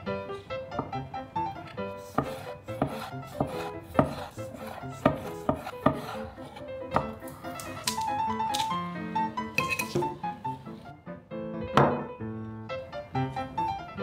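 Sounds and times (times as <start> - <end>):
soft background music: 0.0 - 14.0
knife knocking on cutting board: 5.1 - 6.1, 11.8 - 12.1.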